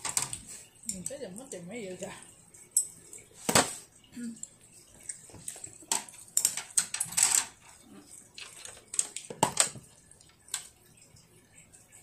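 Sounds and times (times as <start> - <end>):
child eating with chopsticks: 4.1 - 9.2.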